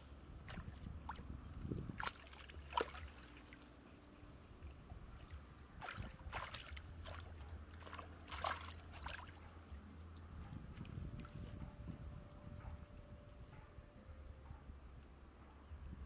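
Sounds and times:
water splashing and sloshing: 0.0 - 12.1
faint low hum: 0.0 - 16.0.

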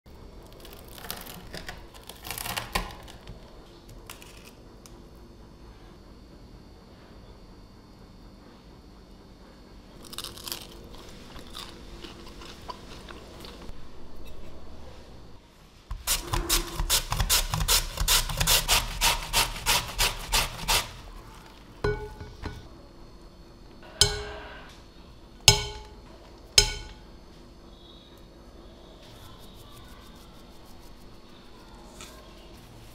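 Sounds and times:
knife crunching through fried potato: 10.0 - 13.7, 15.9 - 21.5.

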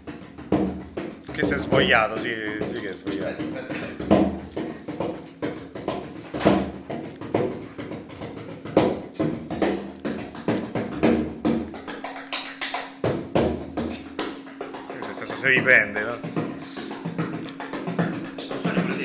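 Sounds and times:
frame drum strokes: 0.0 - 11.9, 13.0 - 19.0.

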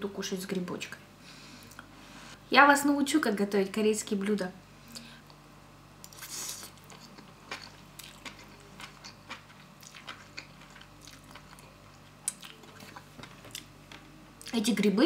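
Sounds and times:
person slurping and chewing noodles: 6.1 - 13.6.

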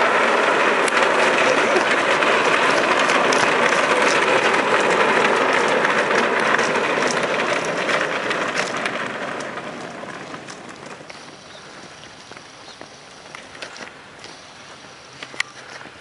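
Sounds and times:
boat hull scraping over ground: 0.0 - 11.8.

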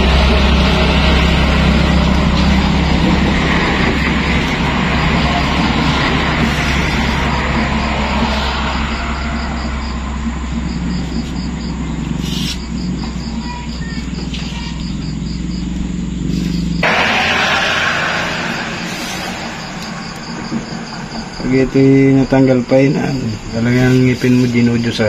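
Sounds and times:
rushing noise: 0.0 - 10.9, 16.8 - 23.6
low hum: 0.0 - 13.4, 14.9 - 22.7
crickets chirping: 0.0 - 25.0.

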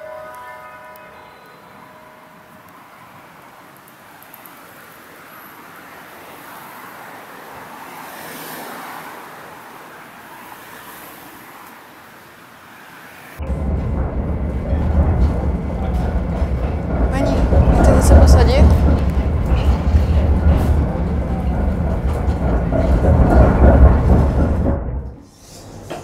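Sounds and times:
car passing: 0.0 - 25.4
road traffic noise: 0.0 - 26.0
loud low rumble: 13.4 - 25.2.

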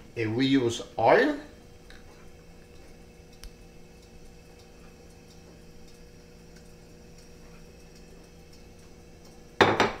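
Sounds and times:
steady low hum: 0.0 - 10.0
faint ticks: 1.9 - 7.3.

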